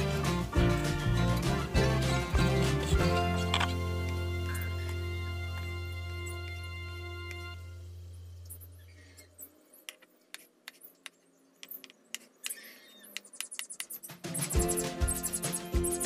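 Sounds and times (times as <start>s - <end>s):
background music: 0.0s - 8.1s, 14.1s - 16.0s.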